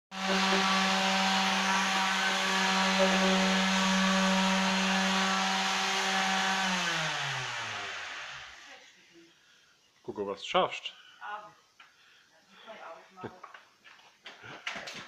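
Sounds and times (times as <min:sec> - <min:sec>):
electric sander motor hum: 0:00.1 - 0:08.7
gritty sanding hiss: 0:00.1 - 0:08.9.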